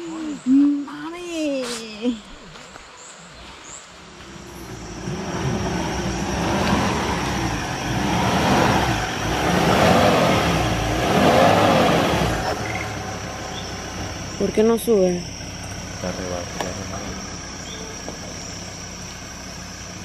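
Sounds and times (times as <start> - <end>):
truck engine revving hard: 4.3 - 18.7.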